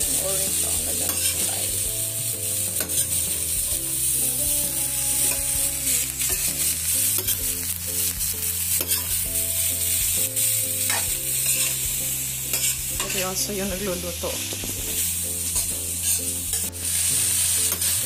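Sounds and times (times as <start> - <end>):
vegetables sizzling in a pan: 0.0 - 18.0
metal spatula scraping a pan: 0.1 - 1.8, 2.6 - 4.1, 6.0 - 9.2, 10.8 - 13.3, 14.6 - 18.0.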